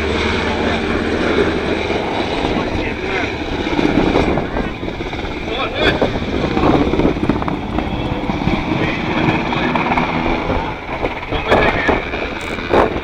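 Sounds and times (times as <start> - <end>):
helicopter rotor chopping: 0.0 - 13.0
turbine engine whine: 0.0 - 13.0.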